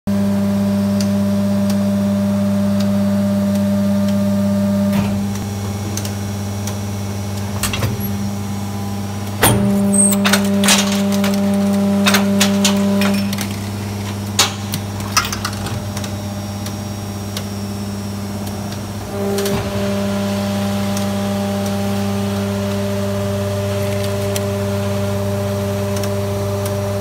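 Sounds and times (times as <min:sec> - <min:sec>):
moulding machine humming: 0:00.1 - 0:27.0
loud machine clack: 0:09.4 - 0:16.0.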